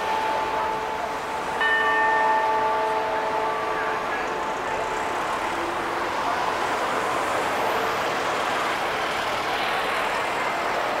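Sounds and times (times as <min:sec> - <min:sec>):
faint clock bell ringing: 0:00.0 - 0:06.6
road traffic noise: 0:00.0 - 0:11.0.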